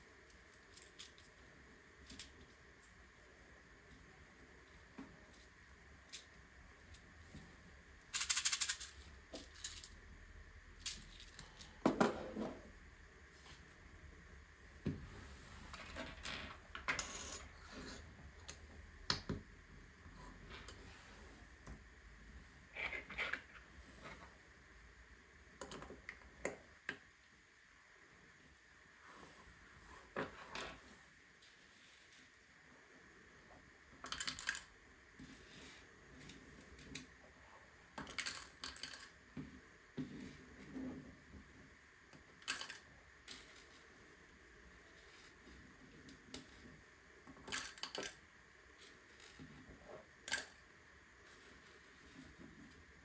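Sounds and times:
plastic pieces clicking together: 8.1 - 10.0, 42.4 - 43.8, 47.5 - 48.2
plastic pieces rattling: 8.1 - 10.0, 42.4 - 43.8.

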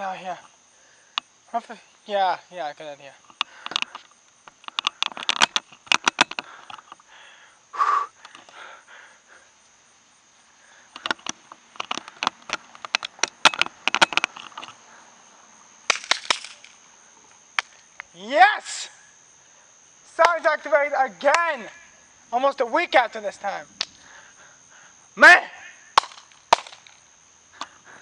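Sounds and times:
crickets trilling: 0.0 - 28.0
camera handling clicks and knocks: 11.0 - 14.8.

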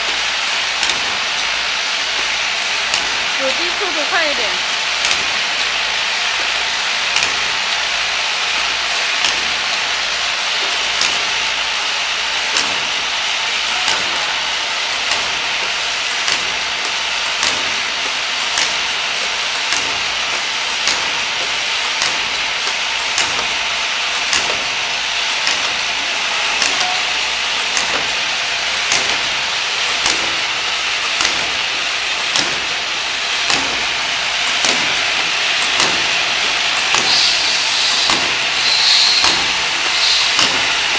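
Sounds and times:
machine hiss and rattle: 0.0 - 40.9
sharp machine click: 26.4 - 28.2, 28.8 - 30.4, 31.0 - 31.7, 33.3 - 40.9.

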